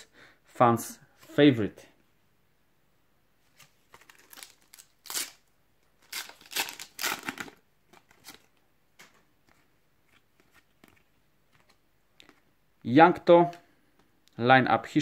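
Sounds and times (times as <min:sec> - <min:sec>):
cards rustling: 0:03.5 - 0:12.5
foil sachet crinkling and tearing: 0:04.0 - 0:05.4, 0:06.0 - 0:07.6.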